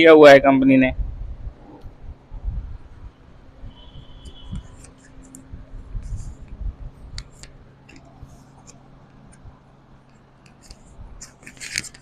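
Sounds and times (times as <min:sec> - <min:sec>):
low steady hum: 0:00.0 - 0:12.0
handling rustle: 0:10.2 - 0:12.0.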